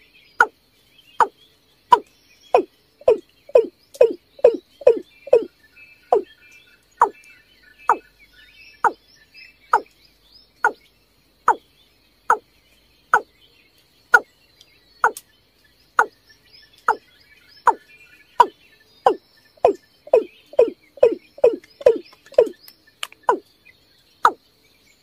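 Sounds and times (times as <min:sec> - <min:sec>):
small birds twittering: 0:00.0 - 0:25.0
bird calling deep notes: 0:01.9 - 0:05.5, 0:06.1 - 0:06.3, 0:19.1 - 0:22.6, 0:23.2 - 0:23.4.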